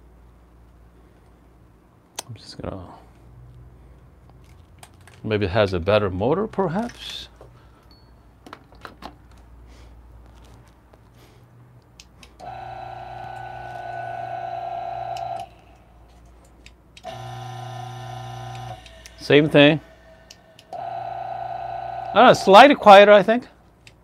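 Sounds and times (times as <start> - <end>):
coffee grinder motor humming: 12.4 - 15.4, 17.0 - 19.2.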